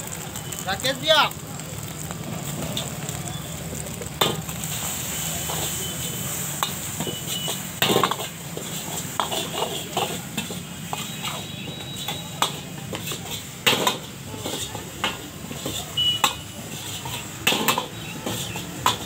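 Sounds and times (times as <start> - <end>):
metal ladle scraping iron wok: 6.6 - 19.0.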